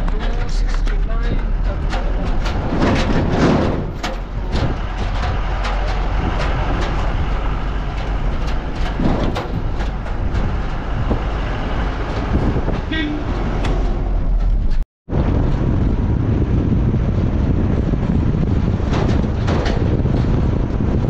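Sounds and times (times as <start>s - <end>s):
engine and road rumble: 0.0s - 21.0s
knocks and rattles: 0.0s - 21.0s.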